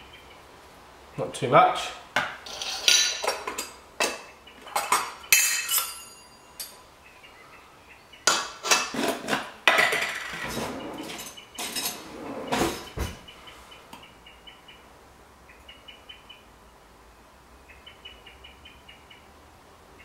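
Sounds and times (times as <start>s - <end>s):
metal coffee filter parts clinking: 2.5s - 3.7s, 4.8s - 6.8s.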